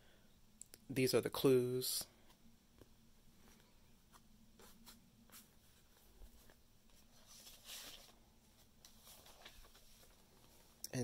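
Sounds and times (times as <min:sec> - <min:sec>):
page turning rustle: 0:04.6 - 0:10.8.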